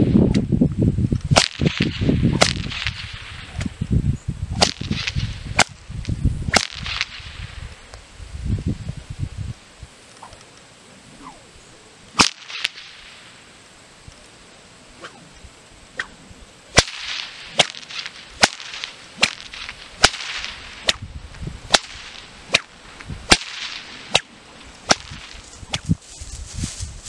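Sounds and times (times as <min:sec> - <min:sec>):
whip cracking: 0:01.3 - 0:03.8, 0:04.5 - 0:05.9, 0:06.5 - 0:07.5, 0:12.1 - 0:13.2, 0:16.0 - 0:21.1, 0:21.7 - 0:26.0
whip lash swishing: 0:01.4 - 0:03.8, 0:04.5 - 0:05.8, 0:06.5 - 0:07.3, 0:11.2 - 0:11.4, 0:12.1 - 0:13.0, 0:15.0 - 0:15.3, 0:16.0 - 0:16.2, 0:16.8 - 0:21.1, 0:21.7 - 0:22.7, 0:23.3 - 0:24.3, 0:24.9 - 0:26.0.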